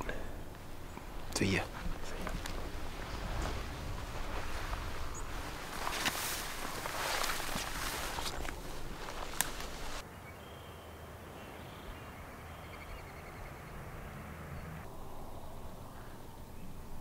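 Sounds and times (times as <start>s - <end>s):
footsteps through dry grass: 0.4s - 10.0s.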